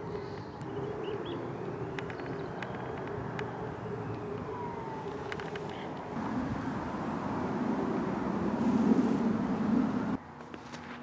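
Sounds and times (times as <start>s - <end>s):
low engine drone: 0.0s - 10.2s
faint clicks: 1.9s - 6.2s.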